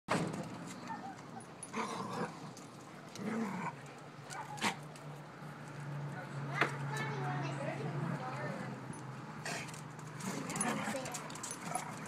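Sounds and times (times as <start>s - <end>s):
dog growling: 1.7s - 2.6s, 3.2s - 3.9s.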